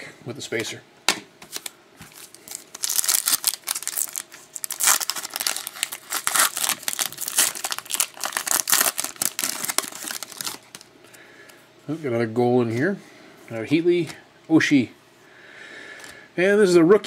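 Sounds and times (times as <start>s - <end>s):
foil wrapper tearing and crinkling: 1.6s - 10.9s.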